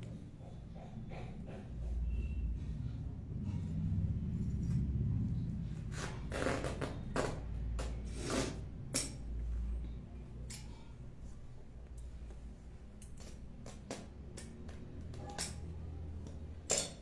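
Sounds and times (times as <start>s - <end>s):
low steady rumble: 1.8s - 7.8s.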